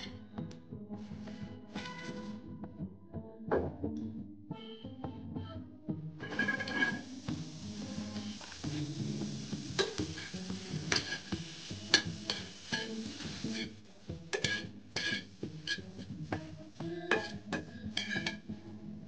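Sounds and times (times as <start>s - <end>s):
spatula scraping frying pan: 6.2s - 18.6s.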